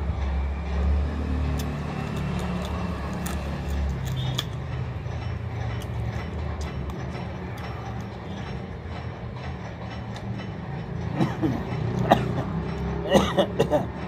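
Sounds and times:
crunchy chewing clicks: 0:01.4 - 0:08.6.

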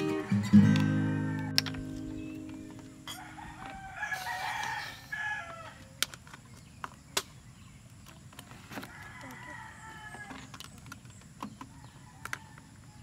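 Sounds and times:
rooster crowing: 0:00.0 - 0:02.0, 0:03.0 - 0:05.8, 0:08.8 - 0:10.4
acoustic guitar chord strummed: 0:00.0 - 0:03.2.

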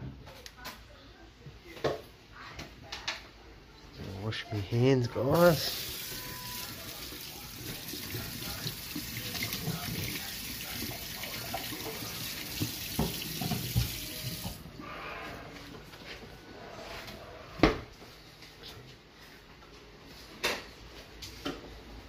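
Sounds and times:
water splashes and thumps: 0:10.9 - 0:14.6
tap running into metal sink: 0:11.5 - 0:14.6.

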